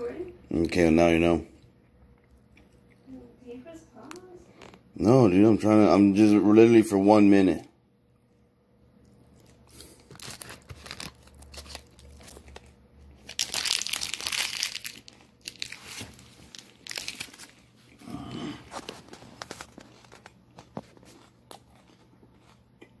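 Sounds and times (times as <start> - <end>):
wrapper crinkling: 9.4 - 17.9, 18.7 - 21.6.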